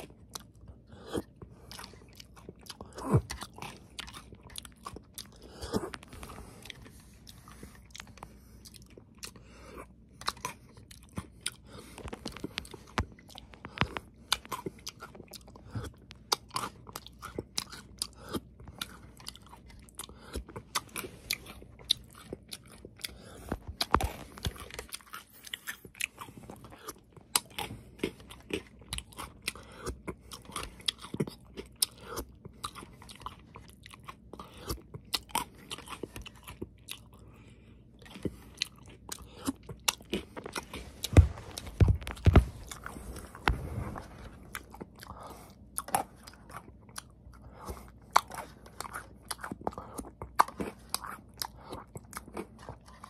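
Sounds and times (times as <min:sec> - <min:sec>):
chewing crunchy cereal: 0:00.0 - 0:53.0.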